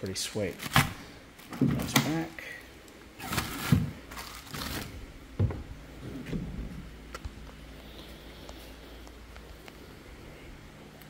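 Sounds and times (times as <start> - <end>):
plastic gear rustling: 3.2 - 5.1.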